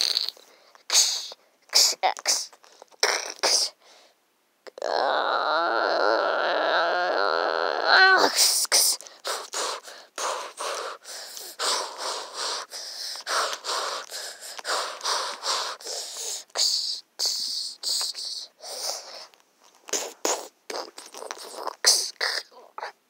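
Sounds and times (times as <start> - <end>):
young person making fighting noises: 7.9 - 12.5.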